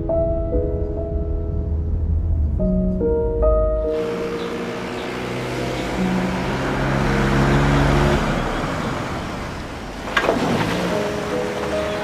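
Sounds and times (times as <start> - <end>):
soft background music: 0.0 - 8.4, 10.3 - 12.0
car driving past: 3.9 - 12.0.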